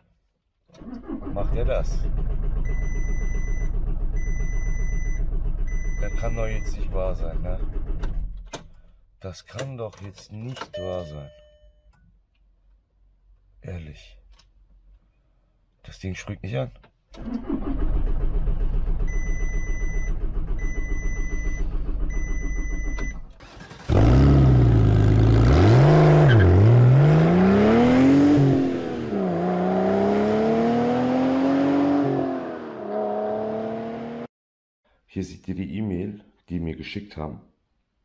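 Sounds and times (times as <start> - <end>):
dashboard warning chime: 10.5 - 12.0
starter motor cranking engine: 17.2 - 24.6.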